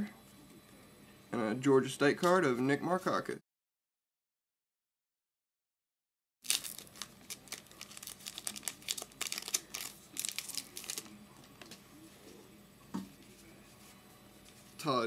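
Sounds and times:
wrapper crinkling and tearing: 0:06.4 - 0:11.8.

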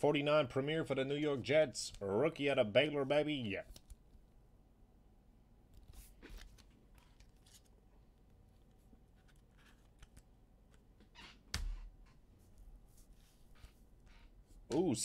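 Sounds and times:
trading cards rustling and clicking: 0:05.8 - 0:11.1.

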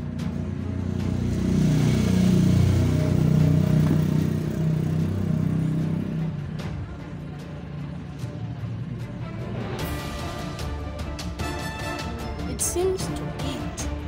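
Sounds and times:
vehicle engine passing by: 0:00.0 - 0:10.2.

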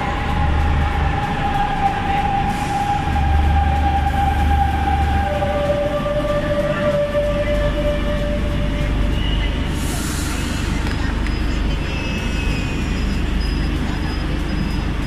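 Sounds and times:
train low rumble: 0:00.0 - 0:15.0
air hiss: 0:09.7 - 0:11.1.

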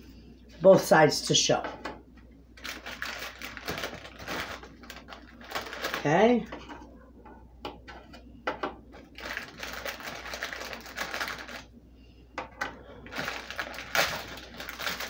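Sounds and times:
plastic sleeve rustling: 0:02.6 - 0:06.6, 0:09.0 - 0:11.7, 0:13.0 - 0:15.0.

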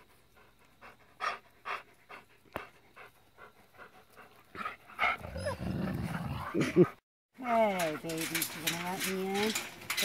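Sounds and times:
wolf panting: 0:00.0 - 0:05.6.

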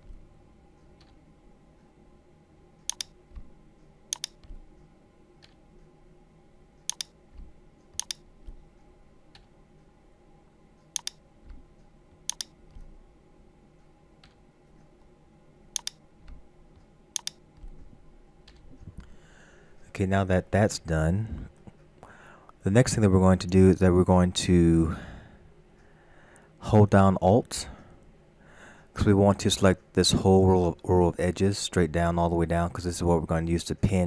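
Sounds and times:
faint steady hum: 0:00.0 - 0:34.0
computer mouse clicks: 0:02.8 - 0:03.5, 0:04.1 - 0:05.6, 0:06.8 - 0:08.6, 0:10.9 - 0:13.0, 0:14.2 - 0:14.4, 0:15.7 - 0:19.0.

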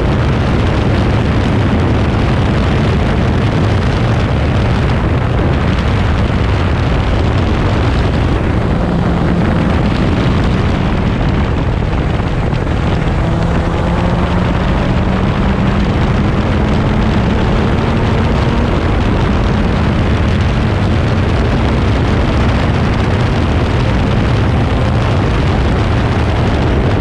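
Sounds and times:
heavy wind rush: 0:00.0 - 0:27.0
race car engine at full throttle: 0:00.0 - 0:27.0.

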